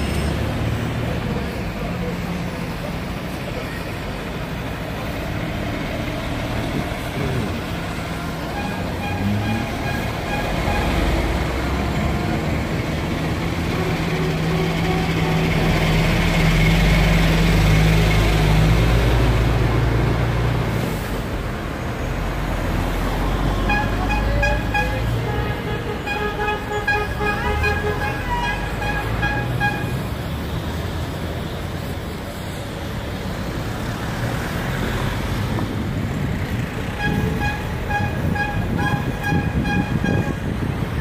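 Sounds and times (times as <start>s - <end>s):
cars passing: 0.0s - 41.0s
lorry engine passing: 22.2s - 31.1s
short horn toots: 37.0s - 40.4s.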